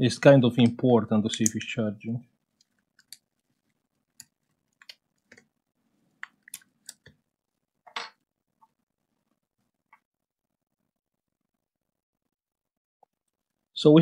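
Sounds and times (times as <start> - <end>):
small clicks and taps: 2.6 - 3.3, 4.1 - 5.5, 6.2 - 7.2.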